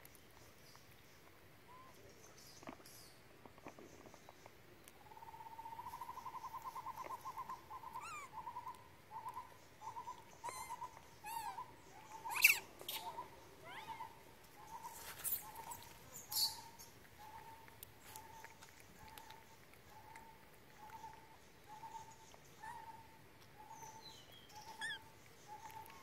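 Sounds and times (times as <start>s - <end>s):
animal calling repeated notes: 6.0s - 17.6s, 24.6s - 25.9s
high chirps: 9.9s - 13.9s.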